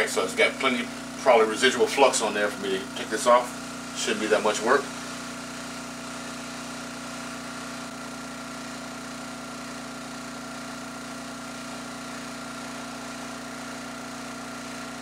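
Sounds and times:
hot air station blowing: 0.0 - 8.3.

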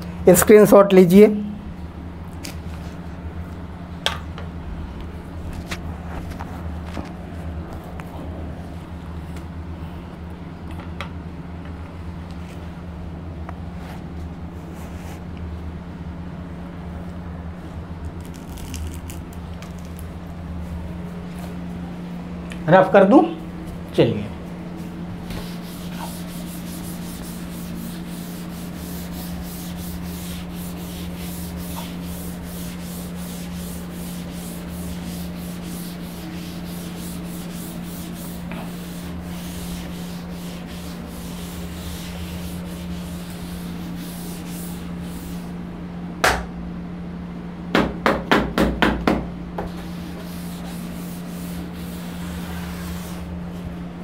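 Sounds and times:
duster rubbing a board: 25.2 - 45.5, 49.7 - 53.4
sharp knocks: 46.2 - 46.5.

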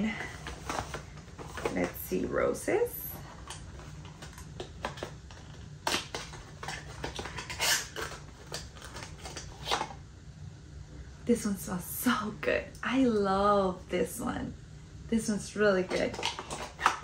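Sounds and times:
cardboard box rustling: 0.2 - 2.0.

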